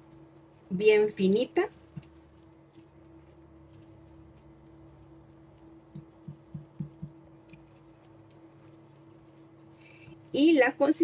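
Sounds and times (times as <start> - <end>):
low hum: 0.0 - 10.8
spatula knocking against pan: 6.0 - 7.2.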